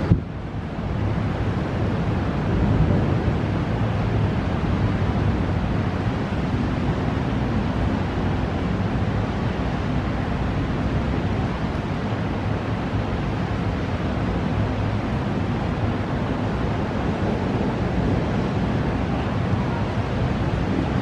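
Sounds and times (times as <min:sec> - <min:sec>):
wind blowing over microphone: 0:00.0 - 0:21.0
heavy low rumble: 0:20.0 - 0:21.0.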